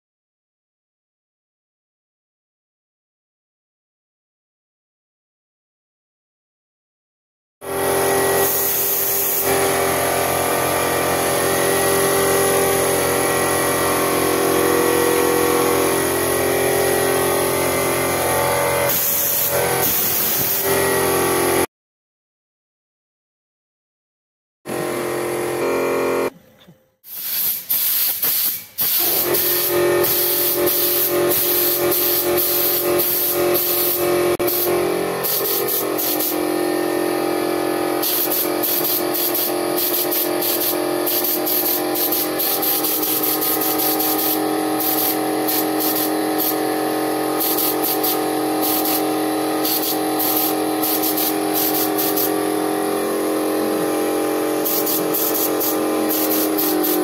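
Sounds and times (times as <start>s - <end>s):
spray gun hissing: 8.4s - 9.7s, 18.8s - 20.8s, 27.1s - 36.5s, 38.0s - 57.0s.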